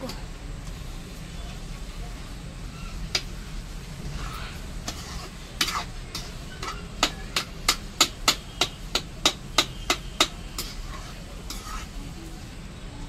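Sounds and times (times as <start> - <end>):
metal spatula knocking on metal pan: 5.6 - 10.8.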